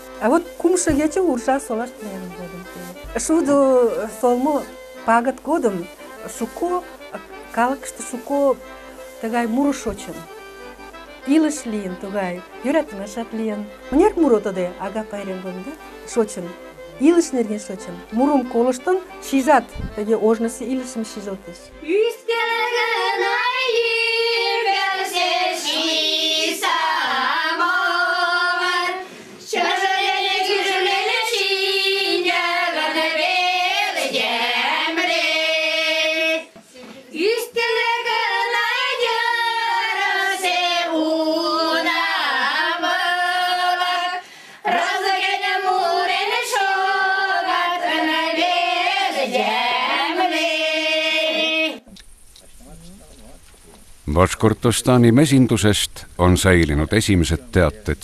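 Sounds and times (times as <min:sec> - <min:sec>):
women singing together: 0:18.8 - 0:51.9.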